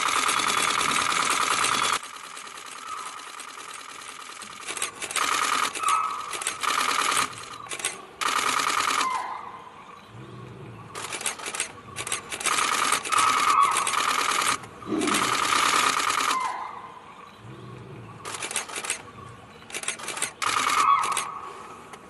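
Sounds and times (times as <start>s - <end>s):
camera shutters firing: 4.6s - 9.2s, 11.0s - 16.5s, 18.3s - 19.0s, 19.7s - 21.4s.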